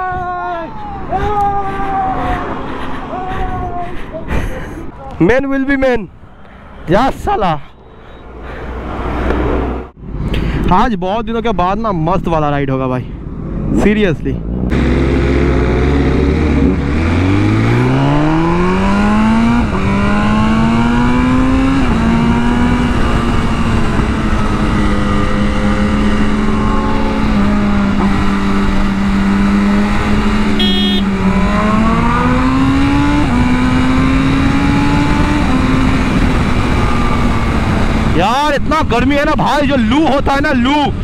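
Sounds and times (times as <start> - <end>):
heavy wind noise: 0.0 - 41.0
sport bike engine accelerating: 14.4 - 38.7.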